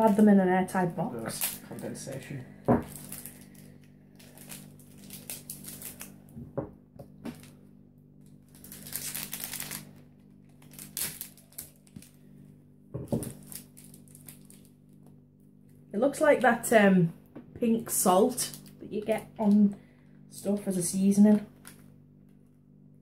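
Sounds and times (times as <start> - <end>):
plastic candy packets crinkling: 0.0 - 6.4, 7.1 - 7.6, 8.2 - 12.4, 13.0 - 15.1, 18.3 - 19.7, 20.3 - 22.4.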